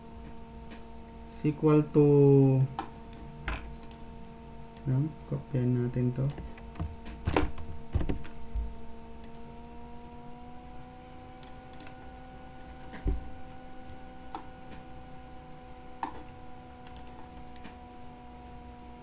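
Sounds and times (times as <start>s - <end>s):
electrical hum: 0.0s - 19.0s
computer mouse clicks: 3.8s - 4.0s, 11.4s - 12.0s, 16.8s - 17.6s.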